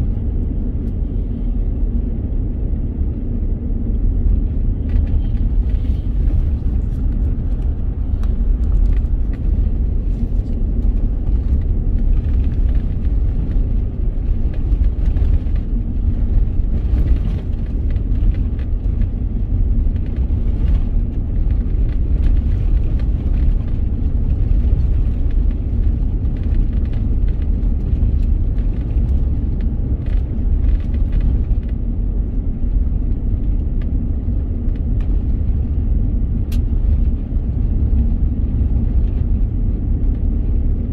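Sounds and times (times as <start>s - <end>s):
tyres rumbling on gravel: 4.9s - 33.4s.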